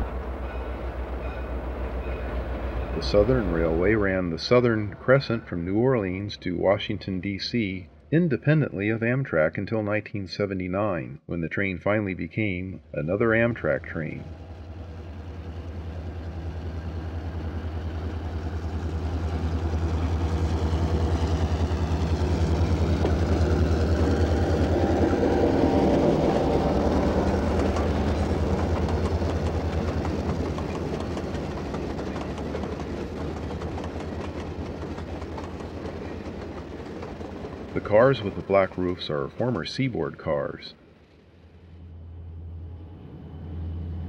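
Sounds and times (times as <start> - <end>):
diesel locomotive engine drone: 0.0 - 44.0
rail clatter: 14.2 - 40.1.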